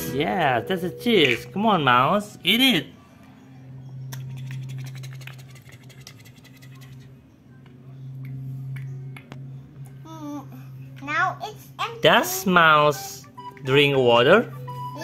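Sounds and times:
steady low hum: 0.0s - 11.8s.

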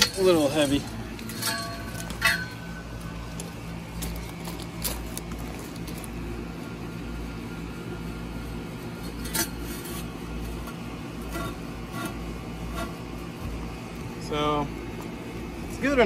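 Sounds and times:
metal pole clinking: 0.0s - 3.4s.

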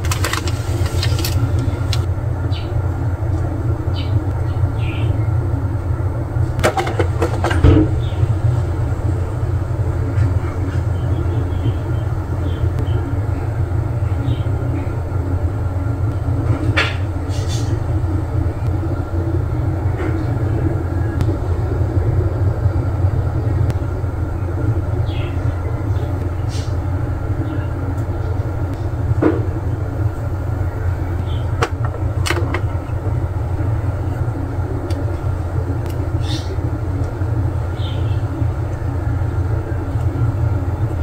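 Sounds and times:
plastic parts clicking and scraping: 0.0s - 2.0s
low rumble: 0.0s - 41.0s.

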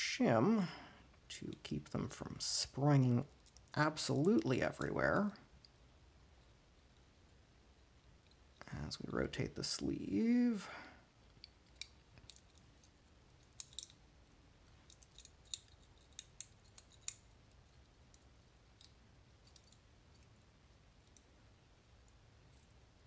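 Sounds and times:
small metallic lock clicks: 13.4s - 14.0s.

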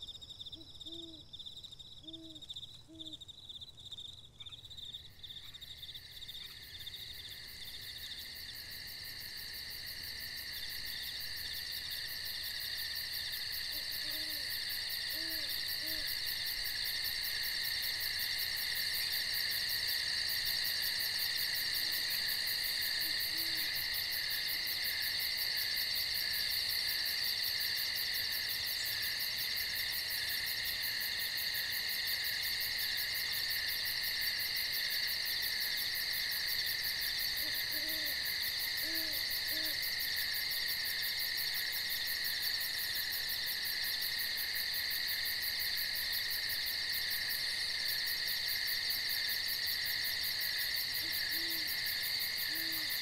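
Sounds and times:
night insects chorus: 0.0s - 53.0s
owl hooting: 0.6s - 1.2s, 2.0s - 3.2s, 13.7s - 16.2s, 23.0s - 23.7s, 37.4s - 38.2s, 38.8s - 39.8s, 51.0s - 51.8s, 52.5s - 53.0s.

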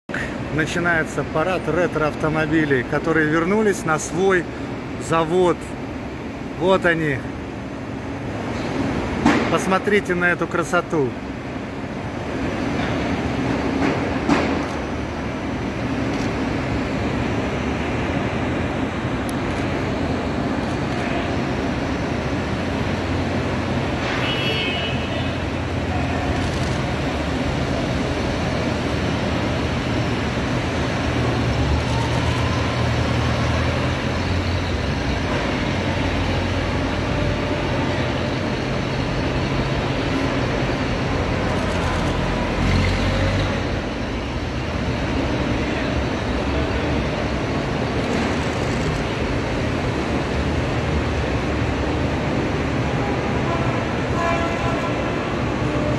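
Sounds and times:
road noise: 0.1s - 55.9s
crowd noise: 15.4s - 55.9s
car engines rumbling past: 25.0s - 53.7s.

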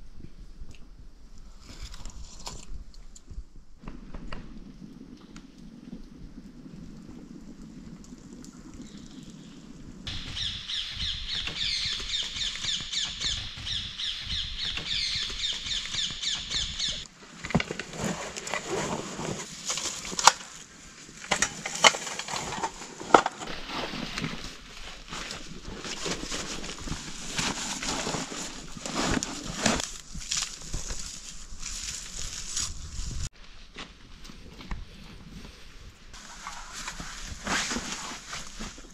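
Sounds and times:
rustling in dry leaves: 9.0s - 38.9s
digging in soil: 14.6s - 34.9s.

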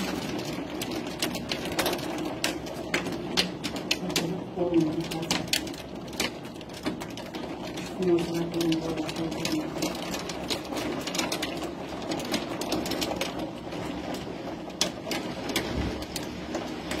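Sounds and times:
hailstones pelting down: 0.0s - 17.0s.

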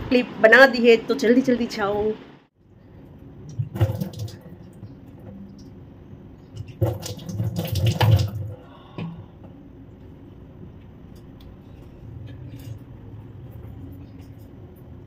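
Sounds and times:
water splashing at a sink: 3.4s - 9.2s.

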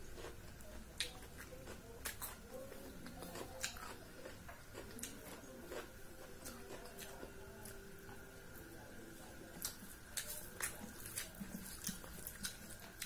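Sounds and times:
chewing and wet mouth smacks: 9.6s - 13.0s.

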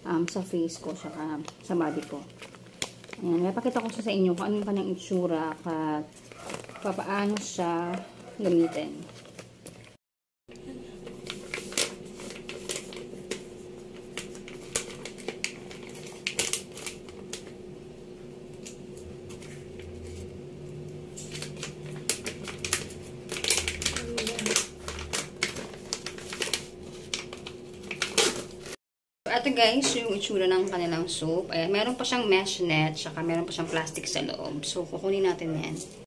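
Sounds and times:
plastic pouch crinkling: 1.4s - 8.0s, 14.0s - 17.5s, 21.2s - 28.8s
steady hum: 10.5s - 35.0s.

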